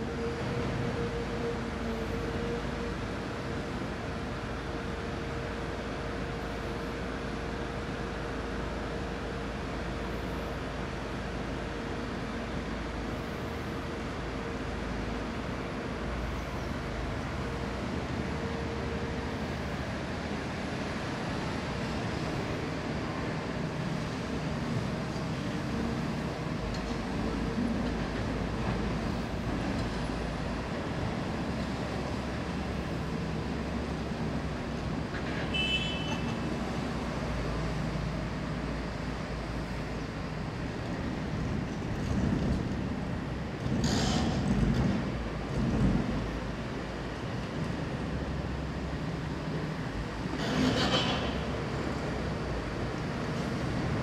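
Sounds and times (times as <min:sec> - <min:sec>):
excavator engine and hydraulics: 0:00.0 - 0:54.0.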